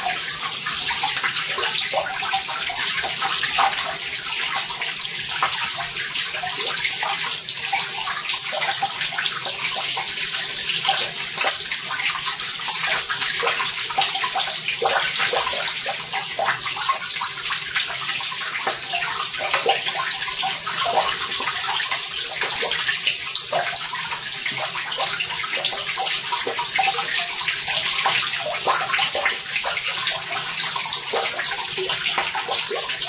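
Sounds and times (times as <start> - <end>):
water trickling over rock: 0.0 - 33.0
small water plops: 8.1 - 33.0.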